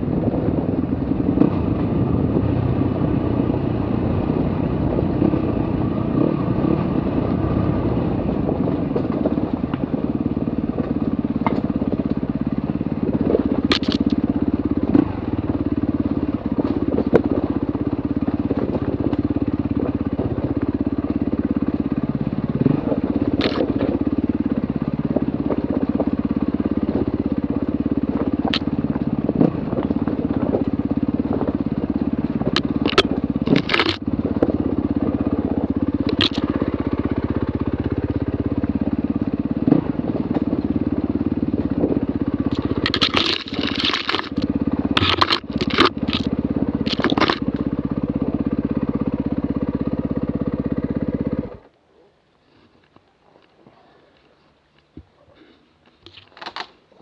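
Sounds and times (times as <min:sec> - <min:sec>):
dirt bike engine at low revs: 0:00.0 - 0:57.0
stones clacking and knocking: 0:13.7 - 0:14.2, 0:23.4 - 0:23.8, 0:32.5 - 0:34.0, 0:36.1 - 0:36.5, 0:42.5 - 0:47.6.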